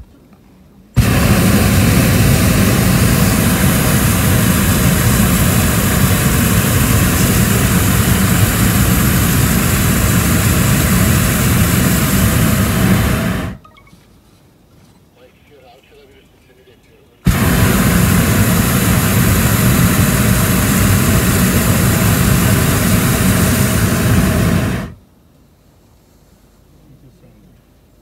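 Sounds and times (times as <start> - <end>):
propane burner roaring: 1.0 - 13.6, 17.2 - 25.0.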